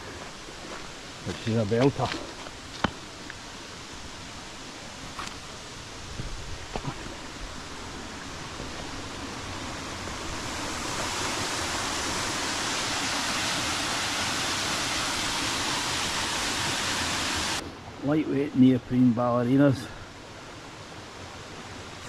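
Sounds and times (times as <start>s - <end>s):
waterfall rushing: 6.6s - 17.6s.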